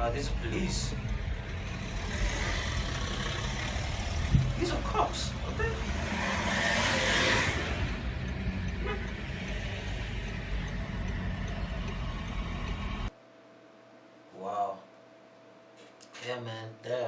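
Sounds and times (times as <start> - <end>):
car road noise from inside: 0.0 - 13.1.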